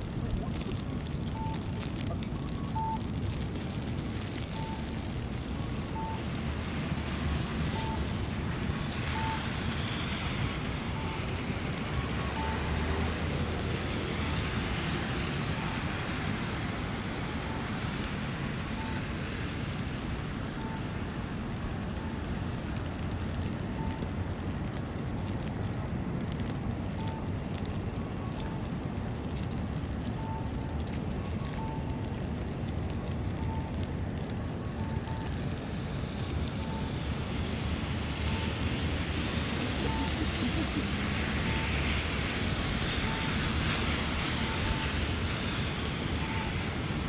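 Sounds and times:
low traffic hum: 0:00.0 - 0:47.0
faint short beep: 0:02.4 - 0:03.0
vehicle passing on slushy road: 0:02.8 - 0:23.4, 0:35.0 - 0:47.0.

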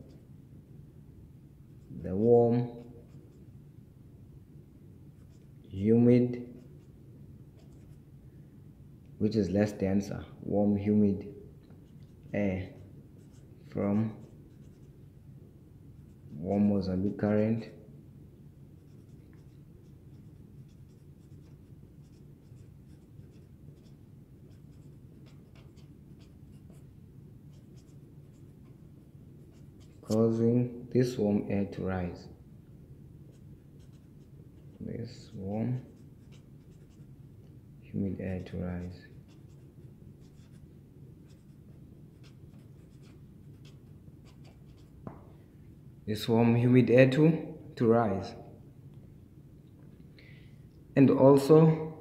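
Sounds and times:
low steady background hum: 0:00.0 - 0:52.0
marker scratching on paper: 0:01.8 - 0:03.5, 0:05.2 - 0:05.5, 0:06.4 - 0:08.1, 0:11.7 - 0:15.0, 0:18.8 - 0:26.9, 0:27.5 - 0:30.5, 0:33.3 - 0:37.2, 0:38.2 - 0:45.2.

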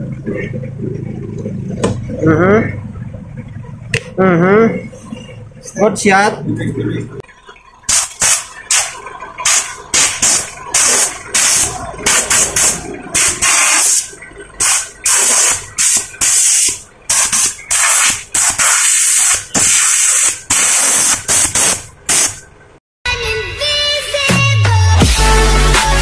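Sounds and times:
hose water spraying on car: 0:07.9 - 0:22.4.

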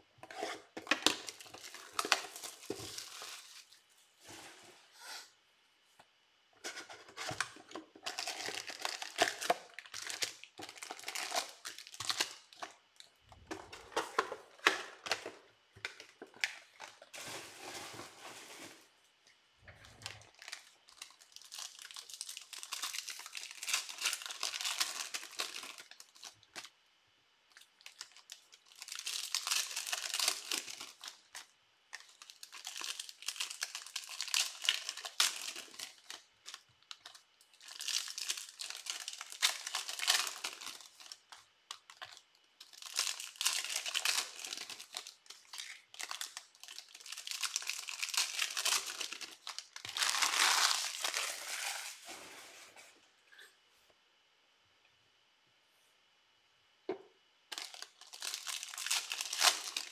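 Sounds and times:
foil wrappers crinkling and tearing: 0:00.4 - 0:04.4, 0:06.6 - 0:18.9, 0:19.8 - 0:26.8, 0:27.5 - 0:52.7, 0:57.5 - 0:59.9.

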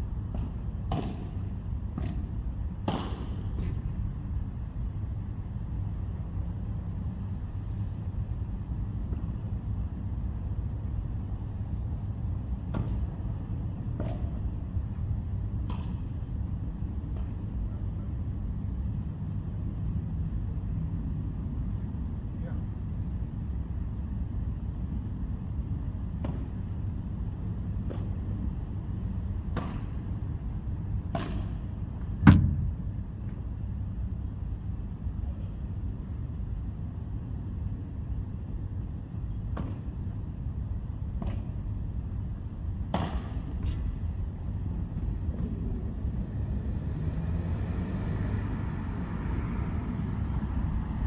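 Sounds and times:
heavy thump: 0:32.2 - 0:32.9.

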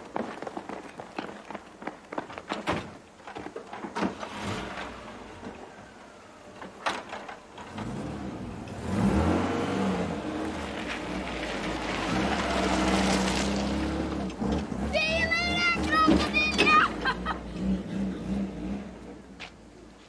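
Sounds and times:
engine starting and revving: 0:04.0 - 0:05.7, 0:07.5 - 0:19.2.

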